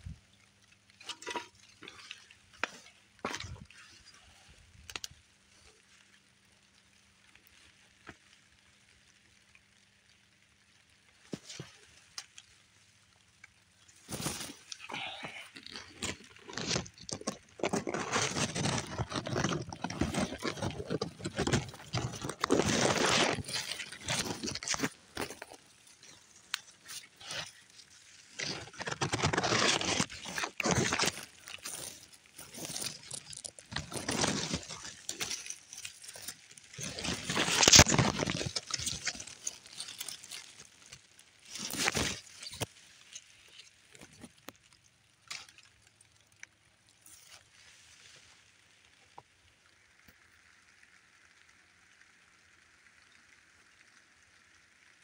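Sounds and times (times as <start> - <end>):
leaves rustling: 0.0 - 54.9
footsteps crunching through brush: 14.0 - 42.8.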